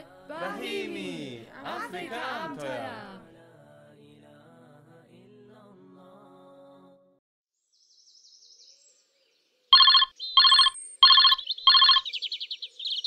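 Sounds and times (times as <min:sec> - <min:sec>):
music: 0:00.0 - 0:07.2
electronic telephone rings: 0:09.8 - 0:12.1
birds twittering: 0:09.8 - 0:13.0.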